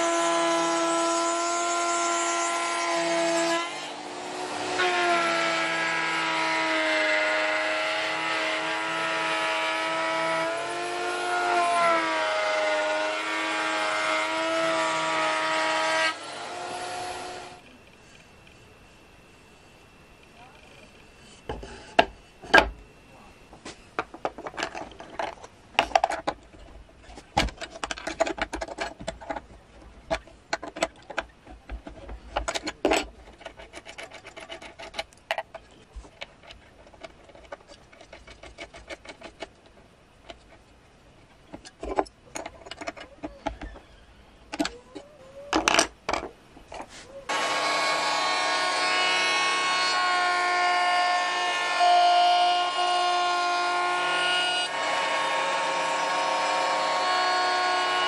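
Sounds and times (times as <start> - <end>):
router whining: 0.0 - 25.3, 47.3 - 58.0.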